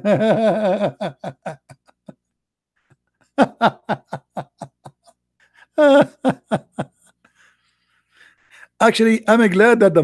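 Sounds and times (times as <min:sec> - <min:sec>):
man laughing: 0:00.0 - 0:02.2, 0:03.2 - 0:07.2.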